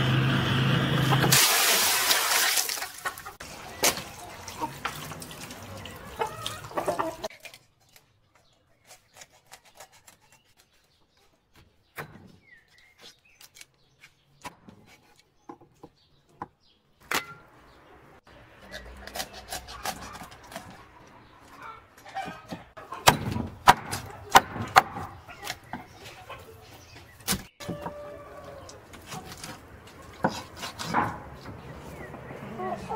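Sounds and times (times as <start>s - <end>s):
sloshing of wet birds: 1.2s - 7.3s
water pouring and splashing: 1.2s - 7.3s.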